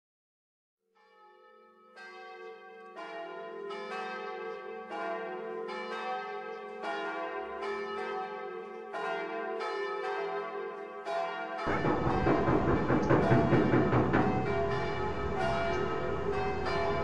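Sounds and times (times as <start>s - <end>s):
bells ringing: 11.0s - 17.0s
steady low hum: 11.7s - 17.0s.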